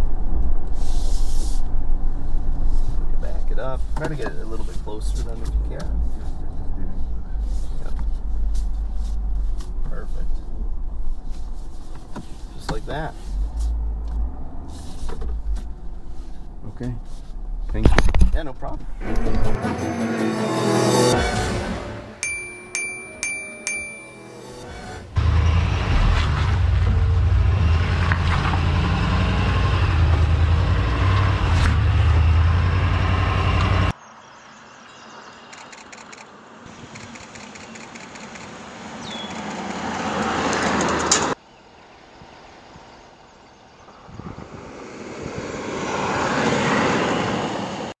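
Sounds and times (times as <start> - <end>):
truck driving on dirt trail: 24.6 - 47.9
truck engine low rumble: 25.0 - 33.9.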